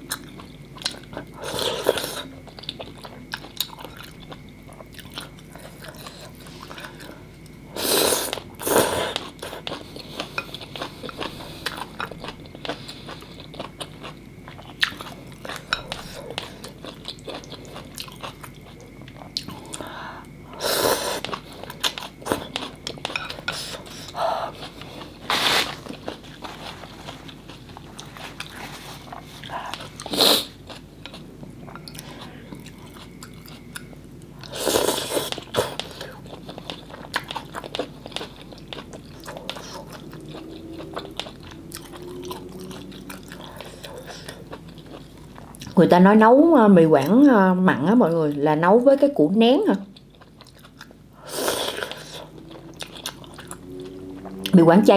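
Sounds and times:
wet chewing: 0:08.2 - 0:20.4, 0:21.2 - 0:45.8, 0:49.8 - 0:51.0, 0:51.6 - 0:54.6.

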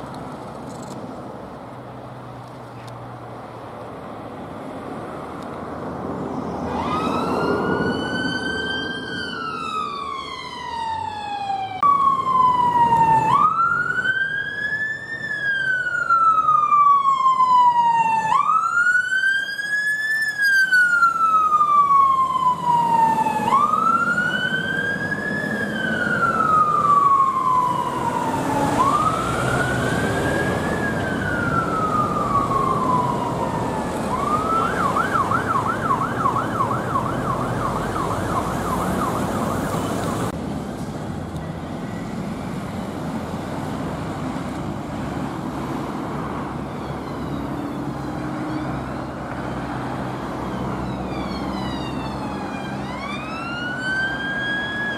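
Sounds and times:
traffic: 0:00.0 - 0:54.9
fire engine siren wailing: 0:06.4 - 0:40.4, 0:41.4 - 0:54.9.

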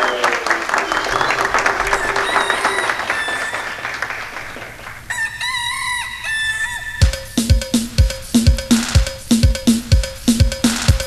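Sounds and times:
applause: 0:00.0 - 0:05.1
rooster crowing: 0:00.0 - 0:07.6
steady drum beat: 0:07.0 - 0:11.0.

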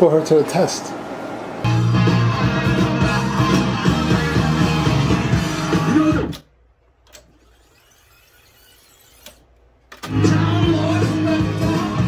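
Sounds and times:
guitar music from tape deck: 0:01.7 - 0:06.4, 0:10.0 - 0:12.0.

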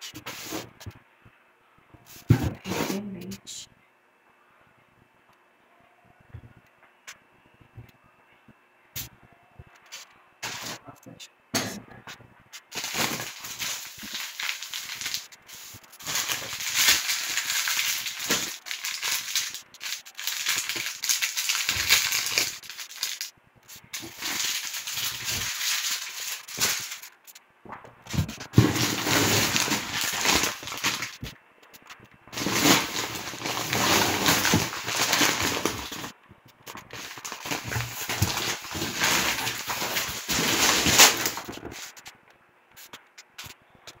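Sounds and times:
plastic packaging crinkling: 0:12.6 - 0:27.4, 0:28.1 - 0:42.1.

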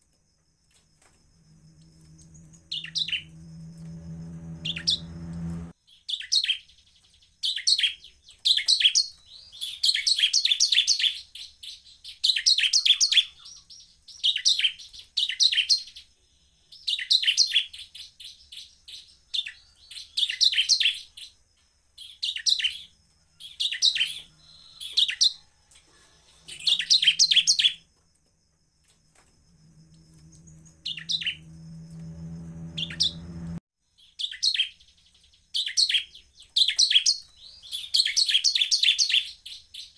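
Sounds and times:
low steady hum: 0:01.2 - 0:05.8, 0:29.4 - 0:33.6
bird singing rapid high chirps: 0:01.8 - 0:16.0, 0:26.4 - 0:27.8, 0:30.0 - 0:39.9.

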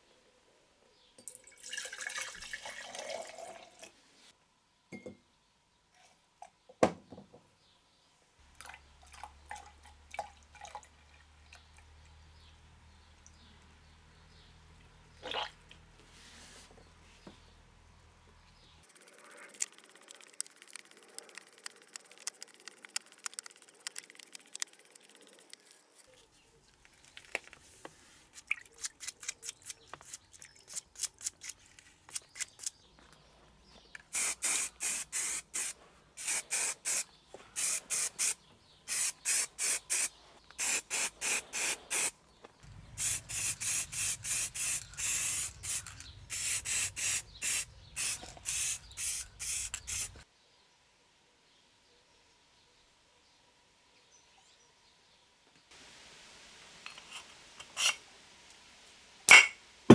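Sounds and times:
aerosol spray paint hissing: 0:34.1 - 0:37.0, 0:37.6 - 0:42.1, 0:42.8 - 0:50.2.

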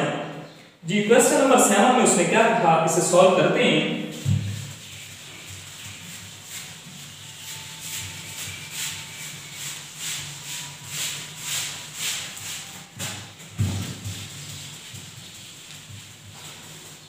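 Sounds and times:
eraser rubbing on whiteboard: 0:04.1 - 0:17.0
short thump: 0:04.2 - 0:04.6.

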